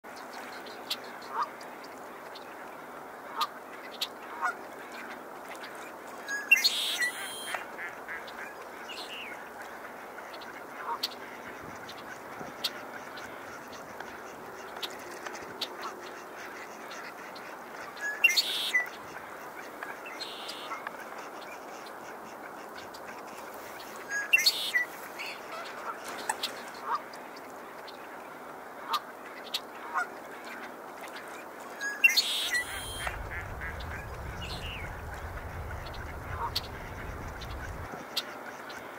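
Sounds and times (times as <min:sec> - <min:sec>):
bird call notes: 0:06.3 - 0:07.6, 0:18.0 - 0:18.9, 0:20.0 - 0:20.8, 0:24.1 - 0:25.4, 0:31.8 - 0:35.0
bird song with buzzy trill: 0:06.3 - 0:07.6, 0:31.8 - 0:33.2
low rumble: 0:33.0 - 0:37.9.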